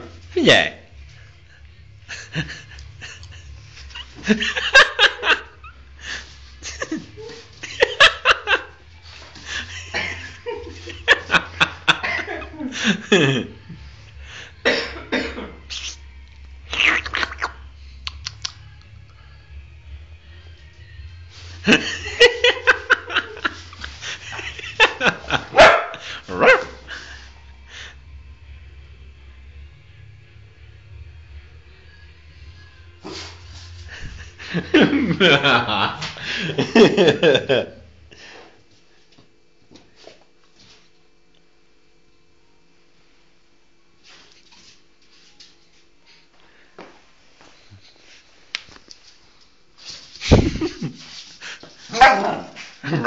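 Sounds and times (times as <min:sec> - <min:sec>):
puppy barking and yipping: 0:25.6 - 0:26.8, 0:51.9 - 0:52.5.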